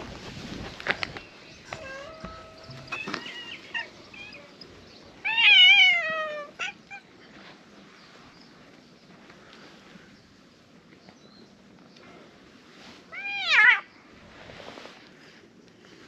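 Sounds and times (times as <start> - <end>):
cats meowing: 1.6 - 7.5, 13.1 - 13.9.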